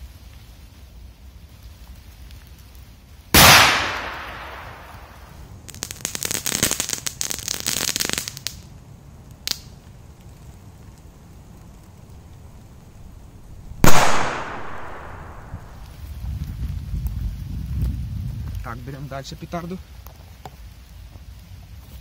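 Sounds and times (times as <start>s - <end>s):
firecrackers crackling pops: 0.0s - 22.0s
firecracker bang: 3.4s - 5.4s, 13.8s - 16.0s.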